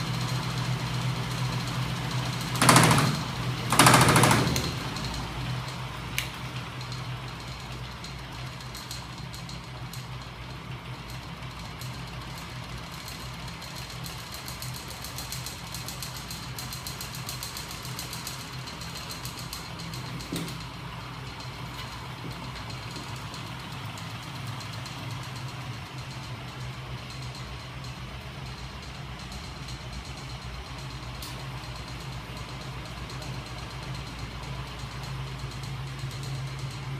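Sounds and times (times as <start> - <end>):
machine humming and rattling: 0.0 - 36.9
click: 6.2 - 6.4.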